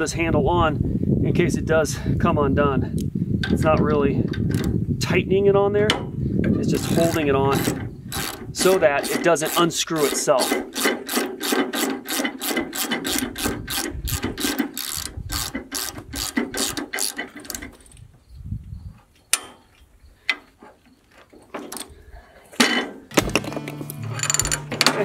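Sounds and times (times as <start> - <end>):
hand crank ratchet clicking: 4.3 - 4.8, 6.6 - 18.0, 23.9 - 25.0.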